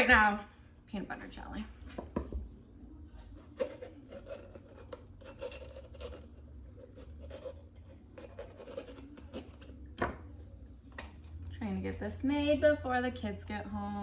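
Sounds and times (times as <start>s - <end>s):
scraping on wooden cutting board: 3.6s - 9.7s.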